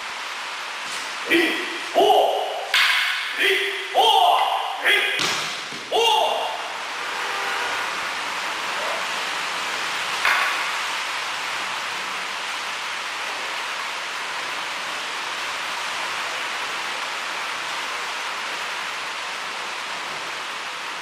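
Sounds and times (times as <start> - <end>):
steady hiss: 0.0 - 21.0
wooden swords clacking: 2.5 - 4.4.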